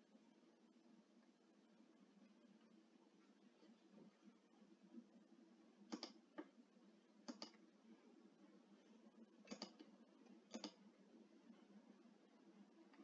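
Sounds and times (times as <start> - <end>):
computer mouse clicks: 5.9 - 6.5, 7.2 - 7.6, 9.4 - 10.8.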